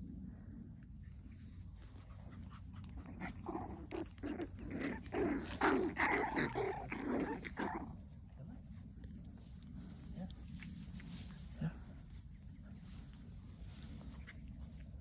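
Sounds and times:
puppies growling in play: 1.3s - 8.8s.

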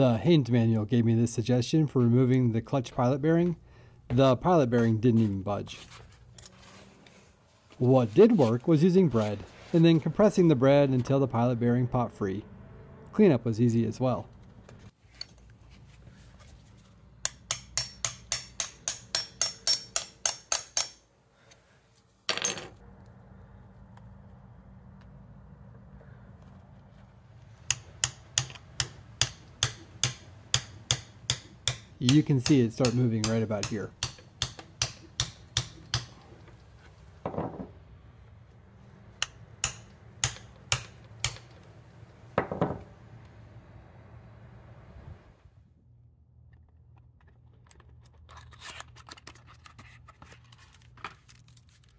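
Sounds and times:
hammer striking bolt: 39.2s - 41.6s.

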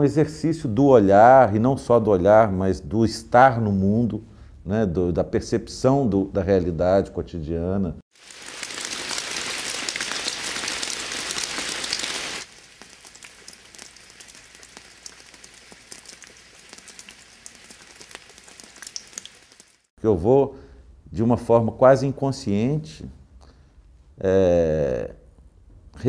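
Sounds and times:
rain falling on ground: 8.1s - 19.9s
single raindrops: 8.1s - 19.9s.

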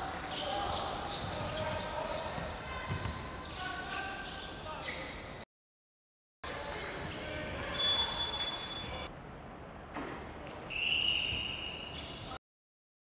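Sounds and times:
shoe squeals: 0.0s - 5.4s, 6.5s - 9.1s, 10.6s - 12.4s.

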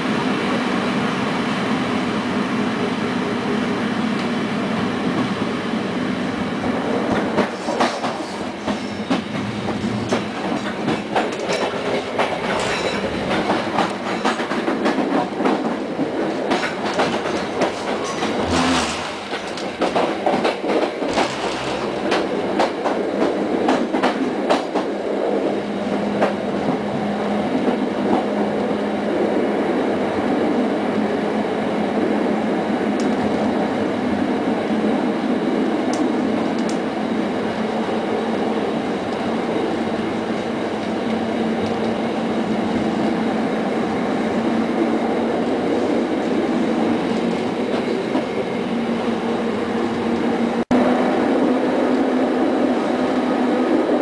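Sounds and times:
train rumble and hum: 0.0s - 54.0s
wheels clattering over rails: 7.1s - 25.0s.

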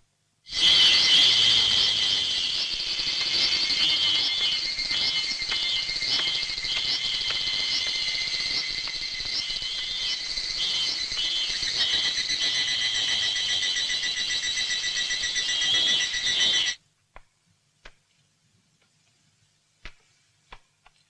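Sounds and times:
high-pitched insect chirring: 0.5s - 16.8s.

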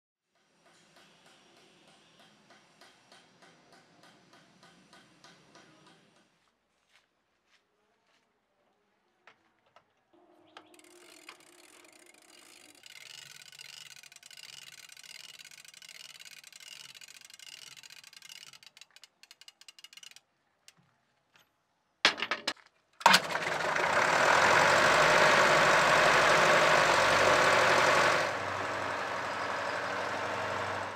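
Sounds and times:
faint ratcheting clicks: 10.7s - 20.8s
diesel engine running with knocking: 23.1s - 30.9s.

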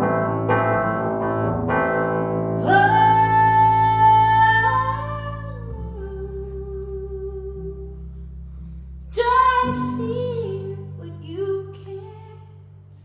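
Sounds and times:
keyboard chords: 0.0s - 12.9s.

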